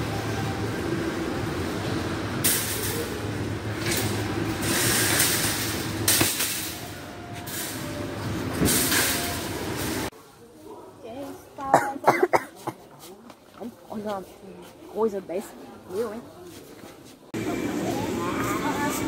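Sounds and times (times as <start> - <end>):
metal shopping carts rattling: 2.4 - 10.1.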